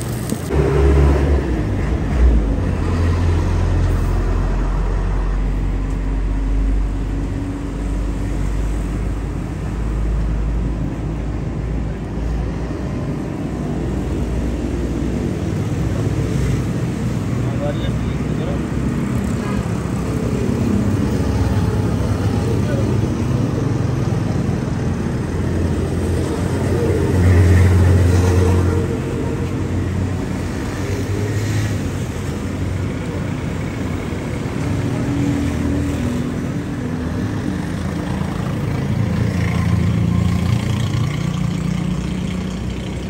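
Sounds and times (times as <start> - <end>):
passing street traffic: 0.0 - 43.0.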